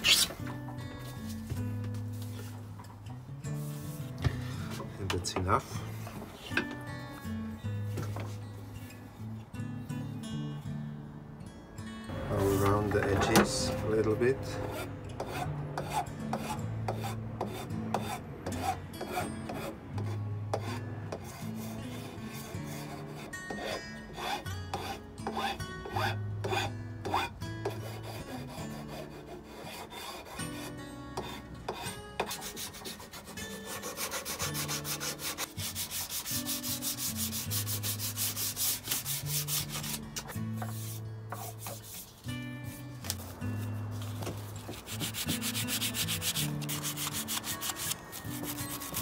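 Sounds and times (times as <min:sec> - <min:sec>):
sandpaper rubbing wood: 0:00.0 - 0:00.4, 0:14.6 - 0:19.7, 0:20.6 - 0:40.0, 0:40.6 - 0:42.1, 0:44.0 - 0:49.0
soft background music: 0:00.0 - 0:49.0
file rasping on wood: 0:14.6 - 0:40.0, 0:44.7 - 0:49.0.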